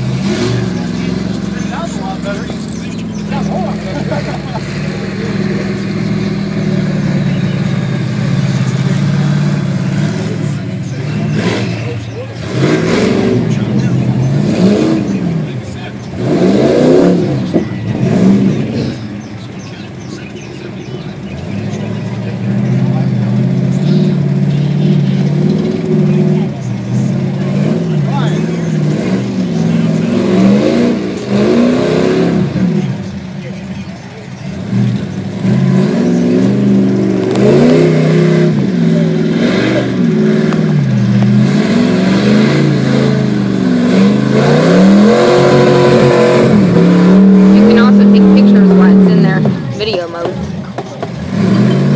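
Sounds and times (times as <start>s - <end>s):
truck engine revving: 0.0s - 51.9s.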